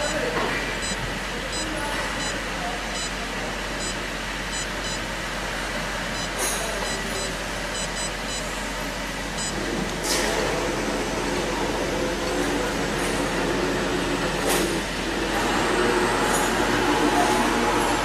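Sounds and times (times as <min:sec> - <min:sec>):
workshop machine noise: 0:00.0 - 0:18.0
short high keypad beeps: 0:00.8 - 0:02.4, 0:03.0 - 0:03.2, 0:03.8 - 0:05.0, 0:06.2 - 0:08.5, 0:09.4 - 0:09.6.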